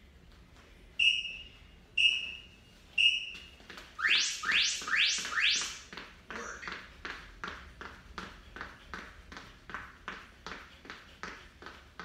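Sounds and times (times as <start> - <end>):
short high timer beeps: 1.0 - 5.9
rising electronic sweeps: 4.0 - 5.9.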